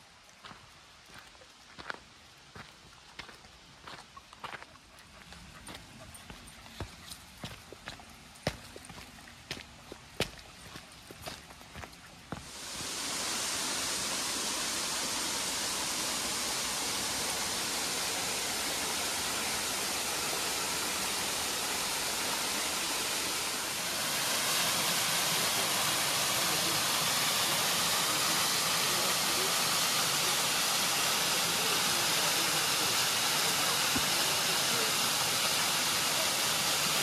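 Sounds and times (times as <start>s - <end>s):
waterfall rushing: 12.4s - 37.0s.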